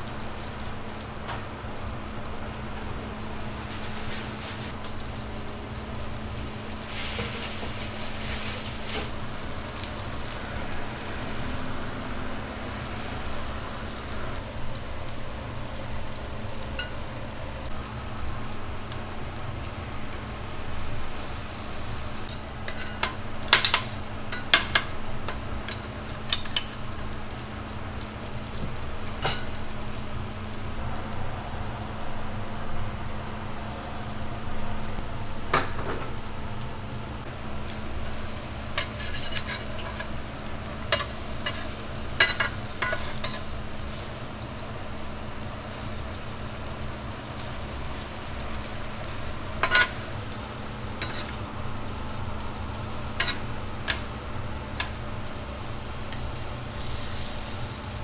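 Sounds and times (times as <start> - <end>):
food sizzling on a griddle: 0.0 - 58.0
steady hum: 0.0 - 58.0
metal spatula clicking on griddle: 40.9 - 43.5.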